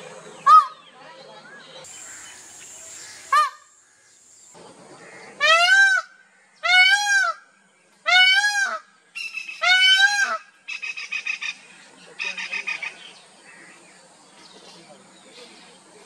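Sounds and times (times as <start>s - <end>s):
peacock wailing call: 2.2s - 3.7s.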